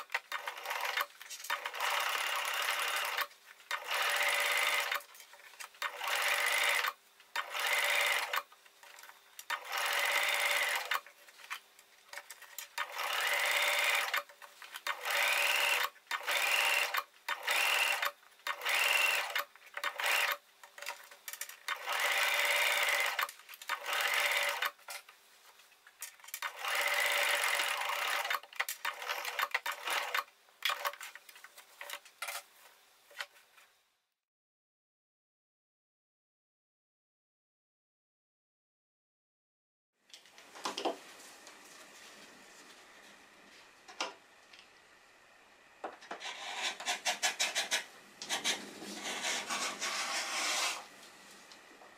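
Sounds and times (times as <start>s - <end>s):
sewing machine stitching: 0.0s - 5.1s, 5.8s - 11.1s, 12.5s - 21.0s, 21.7s - 24.8s, 26.3s - 31.0s.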